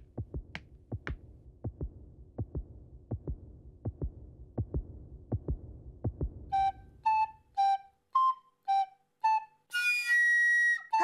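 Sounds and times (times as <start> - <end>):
cartoon heartbeat thumps: 0.1 - 6.6.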